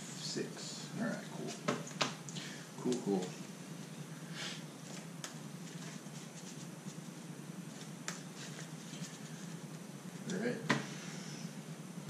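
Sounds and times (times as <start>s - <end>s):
steady low hum: 0.0s - 12.0s
cards rustling as shuffled: 7.7s - 9.6s.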